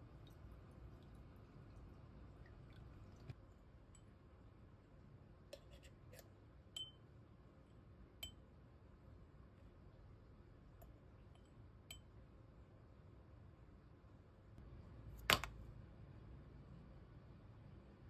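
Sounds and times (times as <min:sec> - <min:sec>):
glassy clinks and taps: 0:06.8 - 0:07.0.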